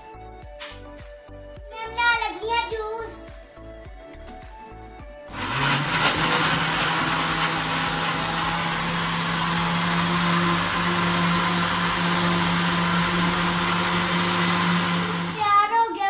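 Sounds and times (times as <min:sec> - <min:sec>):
blender motor running: 0:05.2 - 0:15.4.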